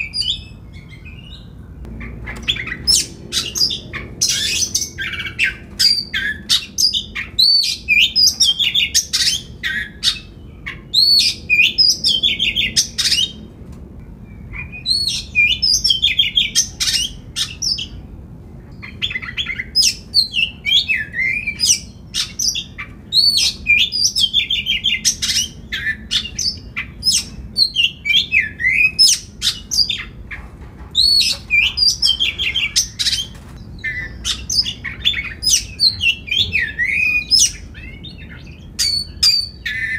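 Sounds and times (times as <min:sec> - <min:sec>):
bird singing whistles: 0:14.3 - 0:17.9, 0:33.8 - 0:39.9.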